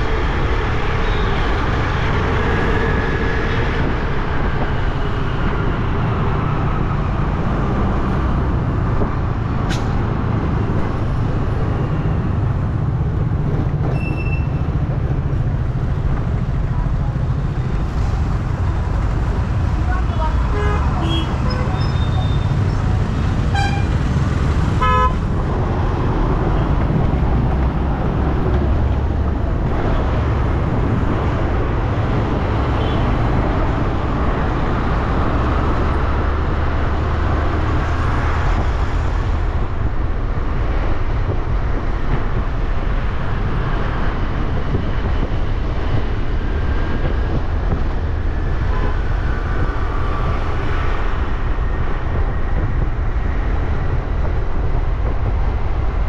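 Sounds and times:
traffic rumble: 0:00.0 - 0:56.0
vehicle horn toot: 0:23.5 - 0:23.9, 0:24.8 - 0:25.2.

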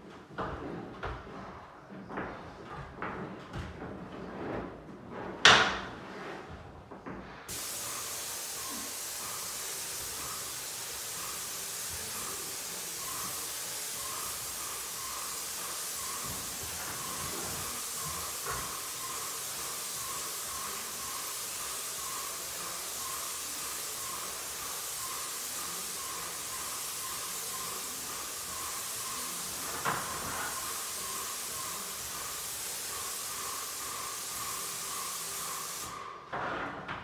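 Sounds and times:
paint spray gun hissing: 0:07.5 - 0:36.1.

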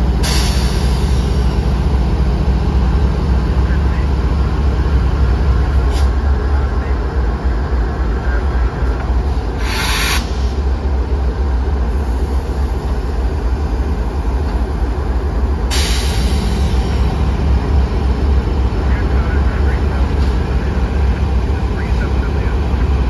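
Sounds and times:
freight train rumbling by: 0:00.0 - 0:23.0
short hissing burst: 0:09.6 - 0:10.6, 0:15.7 - 0:17.0.

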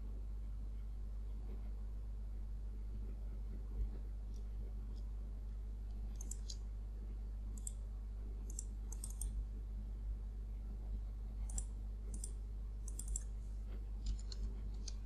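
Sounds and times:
low electrical hum: 0:00.0 - 0:15.0
computer mouse clicking: 0:05.9 - 0:06.6, 0:07.5 - 0:07.8, 0:08.4 - 0:09.4, 0:11.4 - 0:13.3, 0:14.0 - 0:15.0.

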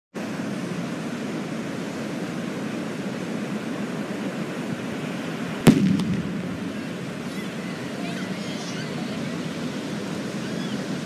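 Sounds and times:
steady rushing noise: 0:05.4 - 0:07.6.

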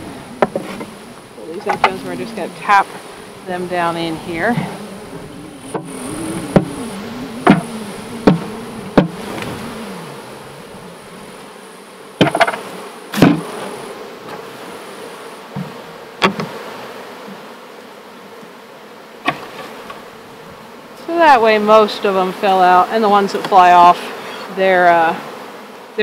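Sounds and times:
honey bees buzzing: 0:00.0 - 0:26.0
hive box knocking: 0:00.4 - 0:00.9, 0:01.5 - 0:03.0, 0:04.4 - 0:10.4, 0:12.2 - 0:13.5, 0:15.5 - 0:16.6.

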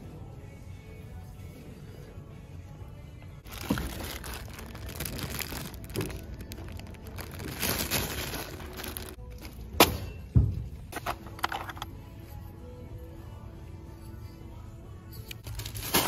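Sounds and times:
plastic bag crinkling and rattling: 0:03.4 - 0:09.2.

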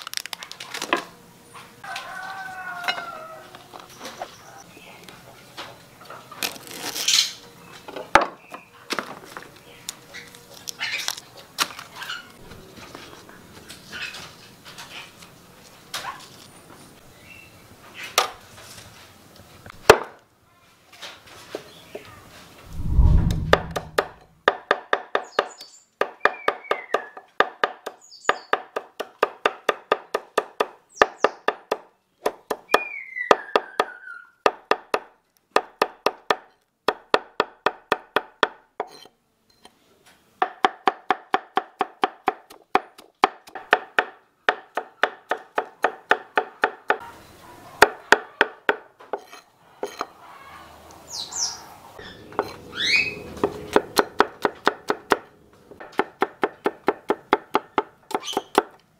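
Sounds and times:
knife chopping on wooden board: 0:40.4 - 0:47.0, 0:53.4 - 0:55.2, 0:55.8 - 0:58.8.

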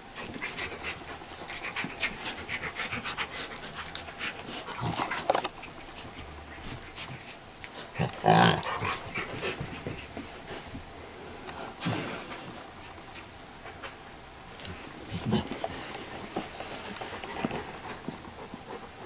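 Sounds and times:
dogs panting: 0:00.1 - 0:10.8, 0:15.0 - 0:19.0.

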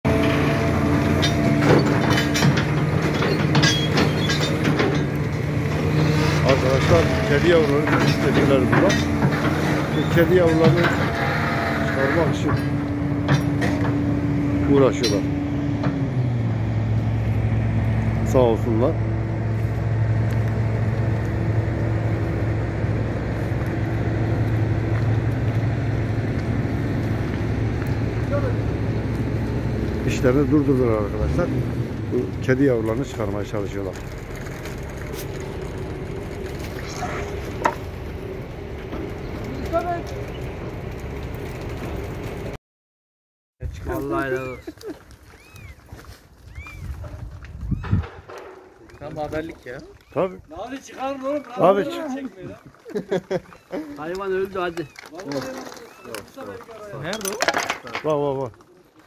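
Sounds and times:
diesel engine running: 0:00.0 - 0:42.6
rubble and metal clanking: 0:00.1 - 0:42.6, 0:43.7 - 0:59.0.

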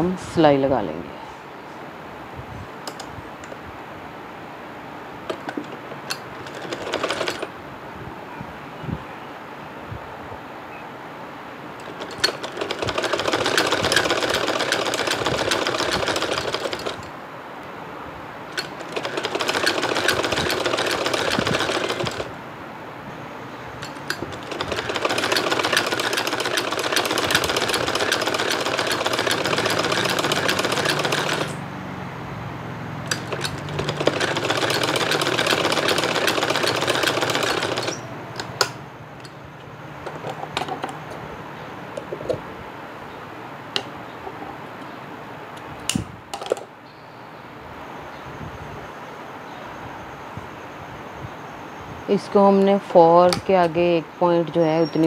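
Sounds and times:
sewing machine running: 0:06.2 - 0:07.5, 0:11.8 - 0:17.1, 0:18.5 - 0:22.4, 0:23.8 - 0:31.6, 0:33.0 - 0:38.1.

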